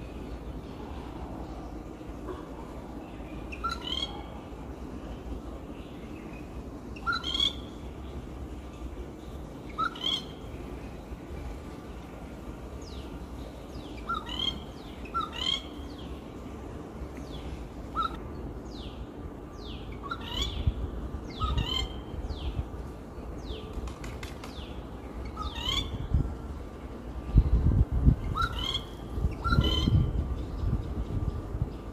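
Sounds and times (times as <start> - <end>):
bird calling: 2.2 - 4.6, 5.8 - 8.0, 9.6 - 10.6, 13.8 - 16.2, 17.2 - 18.2, 18.8 - 22.6, 23.4 - 26.0, 28.2 - 30.1.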